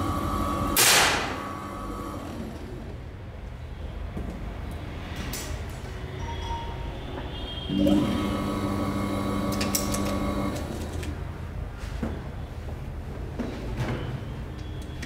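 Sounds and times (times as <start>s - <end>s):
electric motor humming: 0.0s - 3.0s, 7.7s - 11.2s.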